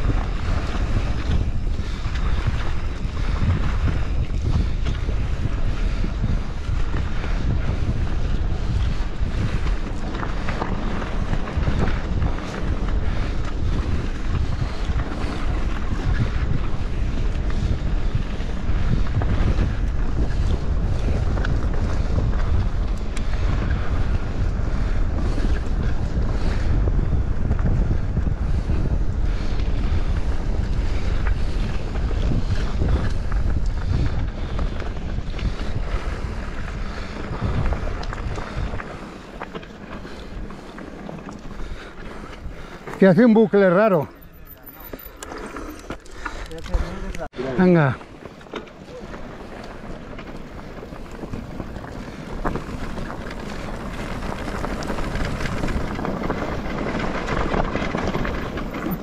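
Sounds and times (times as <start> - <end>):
wind buffeting microphone: 0.0 - 59.0
tyre rumble on gravel: 47.7 - 59.0
bike knocks and rattles: 48.0 - 59.0.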